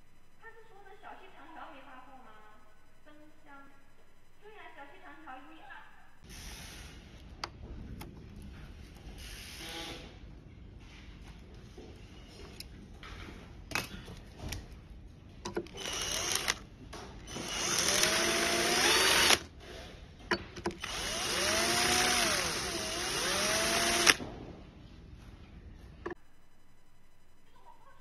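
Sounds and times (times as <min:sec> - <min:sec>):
drill trigger clicks: 0:15.5 - 0:16.6, 0:17.3 - 0:19.5, 0:20.3 - 0:24.2
power drill boring into plastic: 0:15.7 - 0:16.6, 0:17.3 - 0:19.5, 0:20.8 - 0:24.2.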